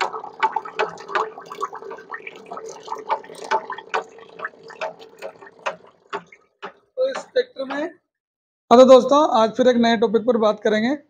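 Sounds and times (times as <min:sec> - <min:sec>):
gear clicks and knocks: 0:00.0 - 0:07.9
gears churning and splashing oil: 0:00.0 - 0:07.9.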